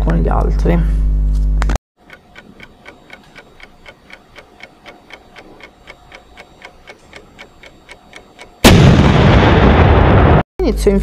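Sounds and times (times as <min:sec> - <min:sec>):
fast steady ticking: 0:02.0 - 0:08.8.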